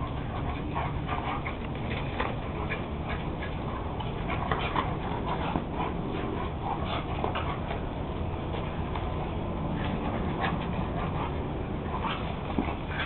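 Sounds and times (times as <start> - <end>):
dogs play-fighting: 0.0 - 13.0.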